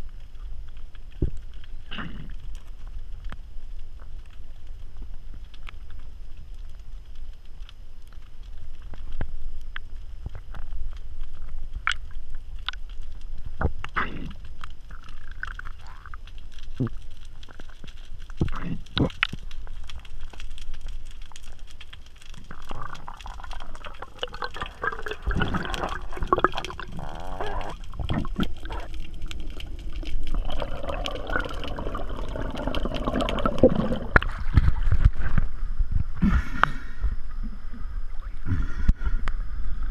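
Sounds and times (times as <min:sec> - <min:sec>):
muffled underwater gurgling: 0:22.4 - 0:39.9.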